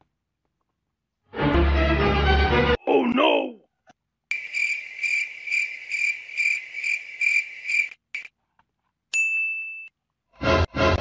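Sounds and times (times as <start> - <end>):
higher insect tone: 4.3 - 8.3
shrill pulsing insect call: 4.3 - 8.3.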